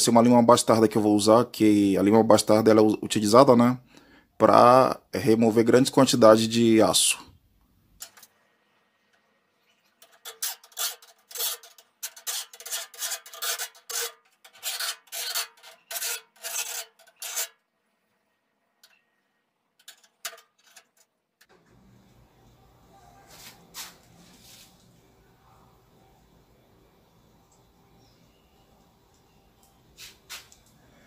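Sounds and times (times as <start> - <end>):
file rasping on steel: 10.0 - 17.6.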